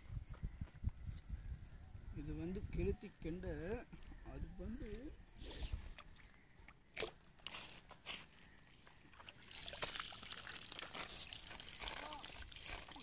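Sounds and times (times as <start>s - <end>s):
water streaming and dripping: 9.1s - 13.0s.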